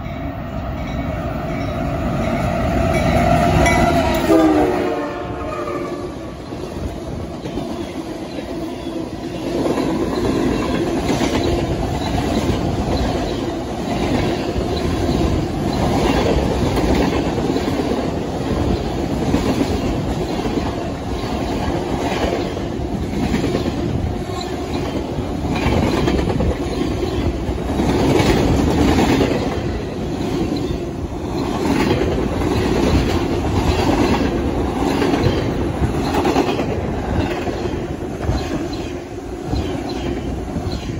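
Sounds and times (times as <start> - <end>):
freight train wheels rumbling: 0.0 - 40.9
wheels clickety-clack: 9.5 - 38.9.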